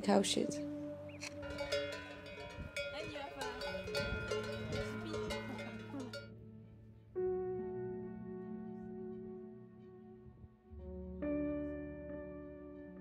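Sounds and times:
low musical tones: 0:00.0 - 0:13.0
cowbells clanking: 0:01.2 - 0:06.3.

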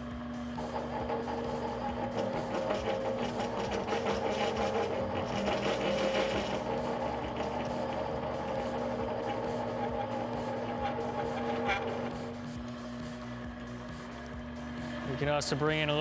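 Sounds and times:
lathe motor and gear hum: 0:00.0 - 0:16.0
cutting bit scraping metal: 0:00.6 - 0:12.7.

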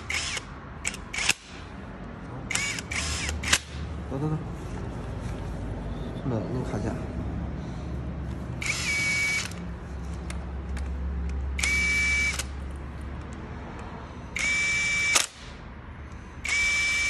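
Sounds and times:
cordless impact tool motor whine: 0:08.6 - 0:09.6, 0:11.6 - 0:12.5, 0:14.4 - 0:15.4, 0:16.4 - 0:17.0.

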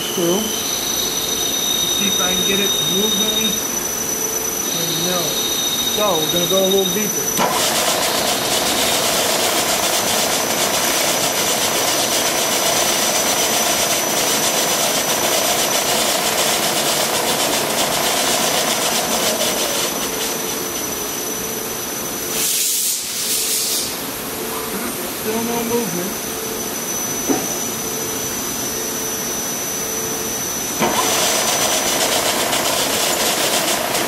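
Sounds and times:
drill bit cutting steel: 0:00.0 - 0:21.2, 0:30.8 - 0:34.0
short burst of hiss: 0:22.3 - 0:24.0.

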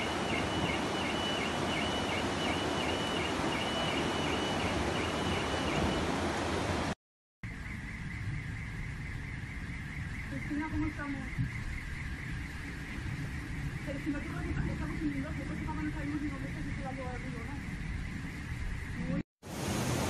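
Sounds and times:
rushing floodwater roar: 0:00.0 - 0:07.0, 0:19.4 - 0:20.0.

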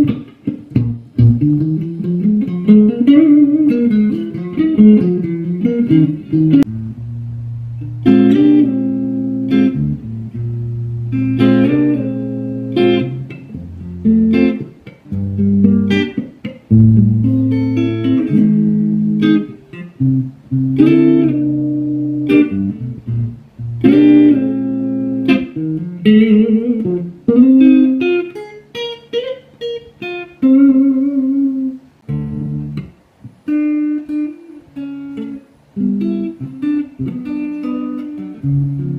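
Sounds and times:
electric guitar played fingerstyle: 0:00.0 - 0:38.9.

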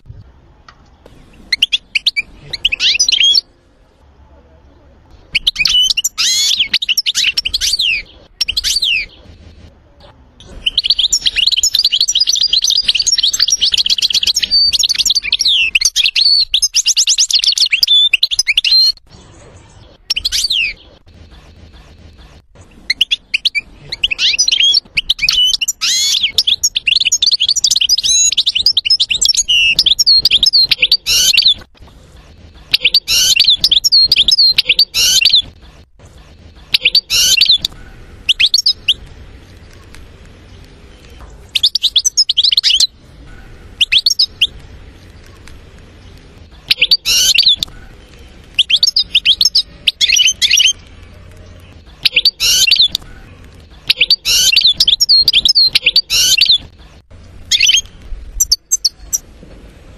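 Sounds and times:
goldfinch singing: 0:22.9 - 0:31.7, 0:32.7 - 0:35.6, 0:36.6 - 0:39.0, 0:46.0 - 0:47.7, 0:51.6 - 0:53.1, 0:53.7 - 0:56.7.

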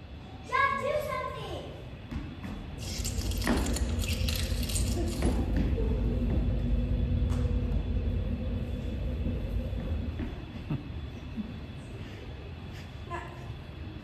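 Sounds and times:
humming tone: 0:02.8 - 0:11.9
low rumble: 0:02.8 - 0:11.9.

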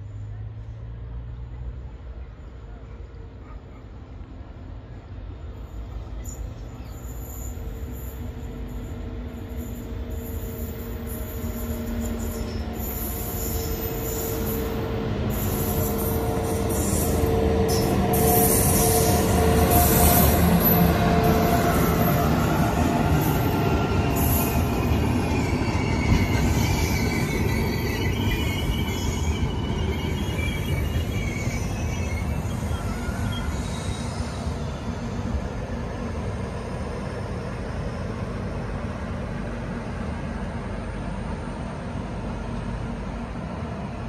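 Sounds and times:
electric locomotive hum: 0:00.0 - 0:44.0
train wheel squeal: 0:05.5 - 0:39.5.

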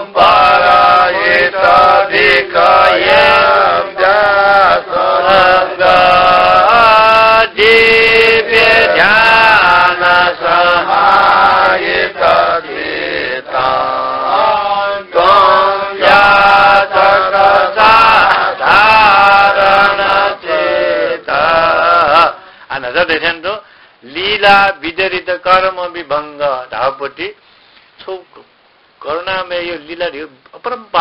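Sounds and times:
man chanting a hymn: 0:00.0 - 0:27.4
short breaths: 0:22.4 - 0:22.7, 0:23.6 - 0:24.0, 0:27.4 - 0:28.0.

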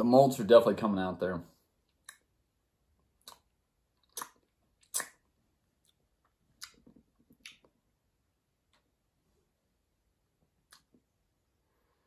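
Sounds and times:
lip smacks and mouth clicks: 0:01.9 - 0:02.4, 0:03.0 - 0:07.9, 0:10.6 - 0:11.1.

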